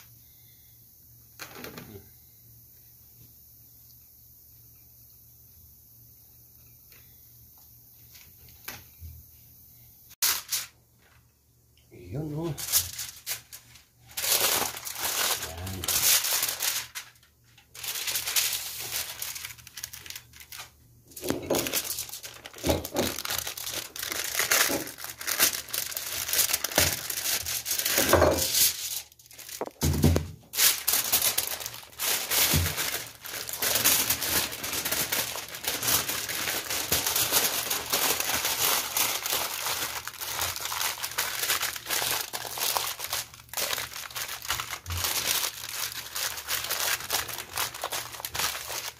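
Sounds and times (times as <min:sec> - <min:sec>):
aluminium foil crinkling: 0:10.2 - 0:11.3, 0:12.0 - 0:48.9.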